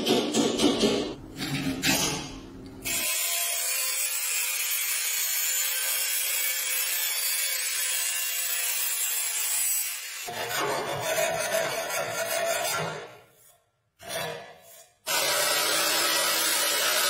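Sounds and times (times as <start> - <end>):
angle grinder cutting sheet steel: 2.8 - 13.0, 14.0 - 17.0.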